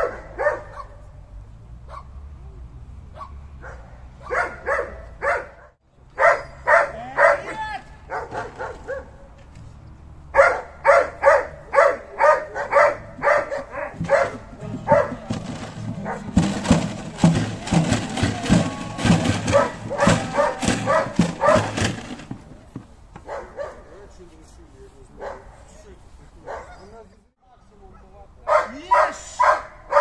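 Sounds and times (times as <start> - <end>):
dog barking: 0.0 - 1.1, 1.9 - 2.2, 3.1 - 9.3, 10.3 - 15.3, 16.0 - 16.4, 19.5 - 21.8, 23.2 - 24.0, 25.2 - 25.7, 26.4 - 26.9, 27.9 - 30.0
loud rapid clattering: 14.0 - 22.6.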